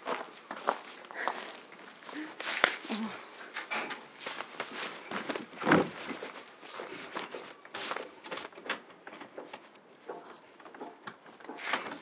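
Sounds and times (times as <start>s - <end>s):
wooden door and latch rattling: 5.6s - 6.3s.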